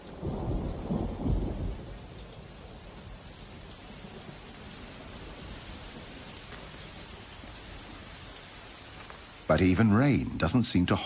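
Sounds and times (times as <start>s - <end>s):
low thunder rumble: 0.0s - 8.2s
steady rain hiss: 0.0s - 11.0s.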